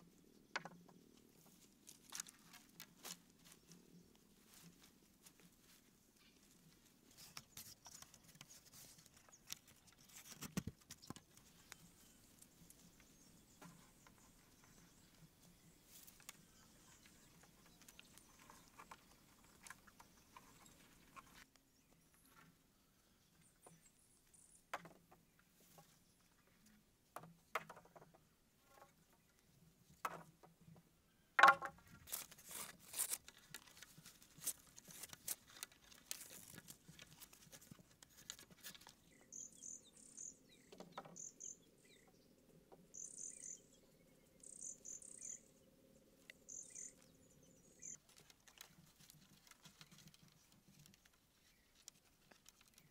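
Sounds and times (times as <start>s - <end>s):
wooden poles knocking: 31.4s - 31.9s.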